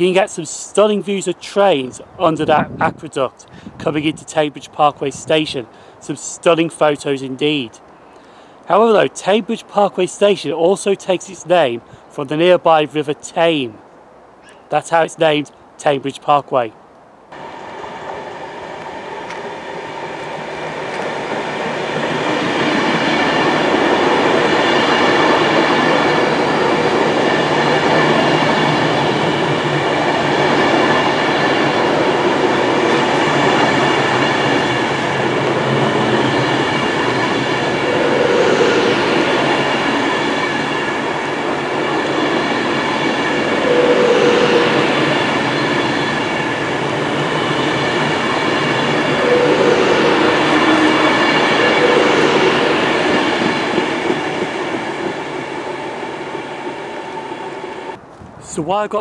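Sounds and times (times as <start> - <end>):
steady train whine: 0.0 - 11.6, 17.2 - 58.1
train wheels rumbling on rails: 17.4 - 58.5.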